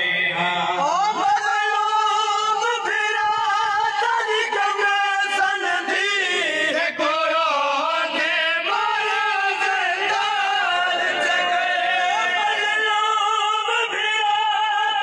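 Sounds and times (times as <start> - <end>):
men chanting a lament: 0.0 - 15.0.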